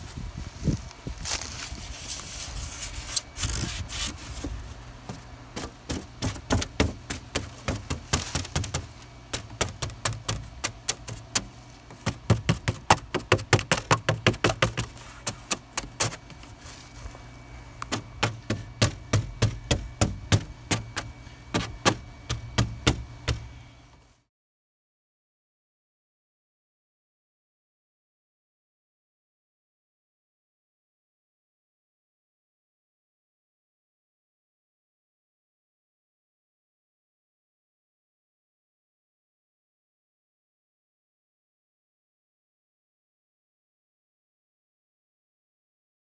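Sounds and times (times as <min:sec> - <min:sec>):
quick sharp knocks on wood: 0:17.9 - 0:23.5.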